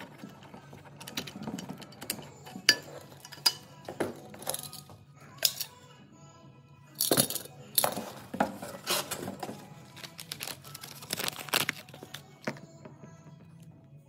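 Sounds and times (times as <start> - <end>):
plastic bag crinkling: 9.8 - 12.4.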